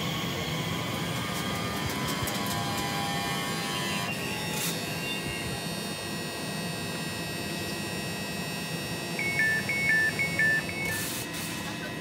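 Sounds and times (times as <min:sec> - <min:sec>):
electrical hum and whine: 0:00.0 - 0:12.0
two-tone electronic beeping: 0:04.9 - 0:05.6, 0:09.1 - 0:11.3.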